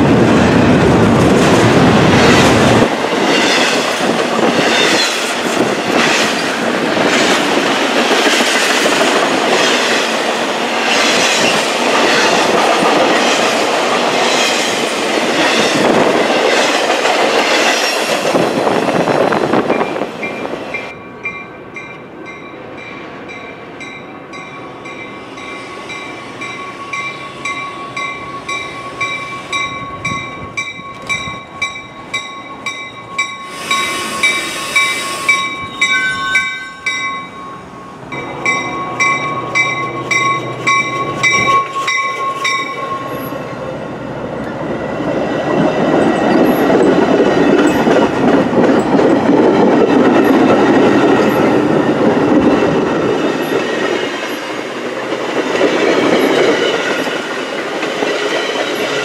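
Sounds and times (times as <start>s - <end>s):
train rolling noise: 0.0s - 59.0s
high steady ringing tones: 20.9s - 43.4s.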